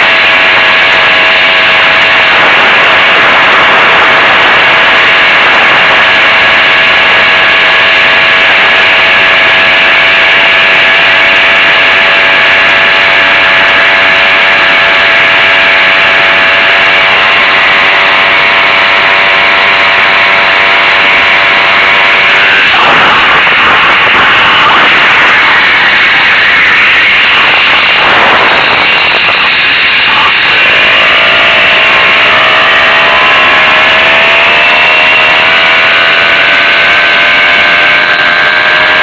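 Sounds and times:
moped engine running steadily: 0.0 - 39.0.

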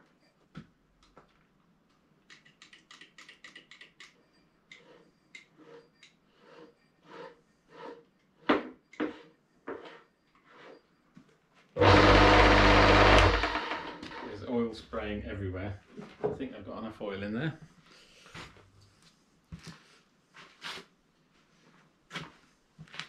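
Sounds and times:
short squeaky strokes: 4.2 - 11.1
lathe motor humming: 11.8 - 14.4.

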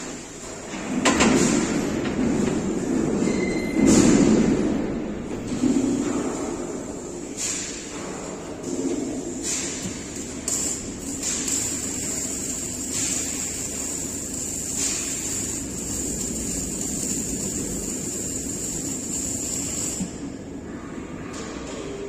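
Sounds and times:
welding arc hissing and whining: 9.1 - 20.4.

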